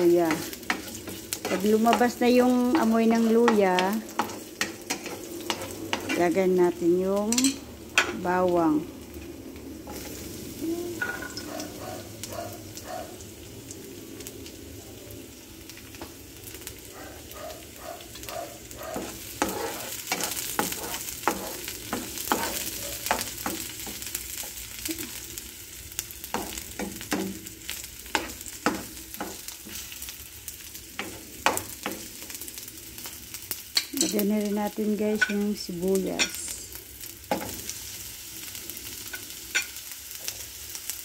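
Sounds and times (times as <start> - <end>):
spatula knocking and scraping pan: 0.0 - 6.4, 18.8 - 24.6, 26.2 - 27.5, 28.1 - 29.9, 31.0 - 32.2
garlic sizzling in oil: 0.0 - 41.0.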